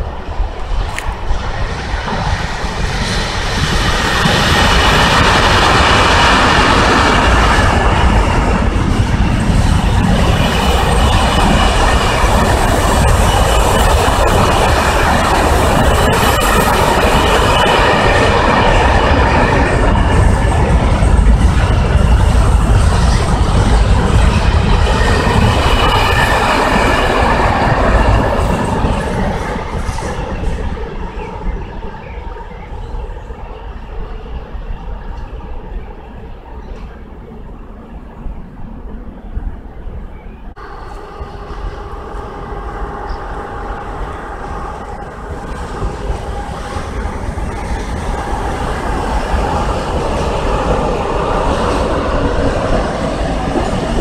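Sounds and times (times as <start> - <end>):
train wheels clattering over rails: 0.8 - 32.7.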